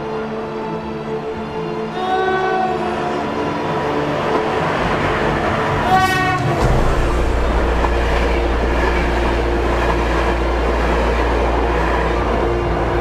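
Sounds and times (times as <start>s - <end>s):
train horn blast: 1.9s - 10.6s
locomotive passing at speed: 2.0s - 13.0s.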